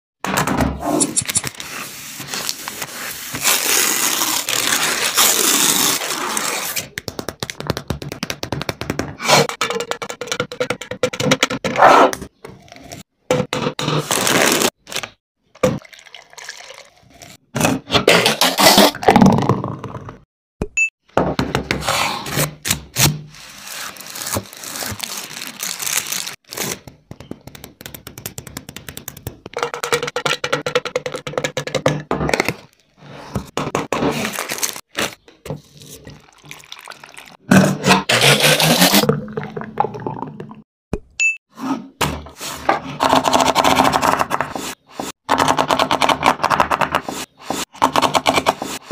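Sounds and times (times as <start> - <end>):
milk pouring into blender jar: 15.8 - 17.0
milkshake pouring into glass: 15.8 - 17.1, 36.1 - 37.4.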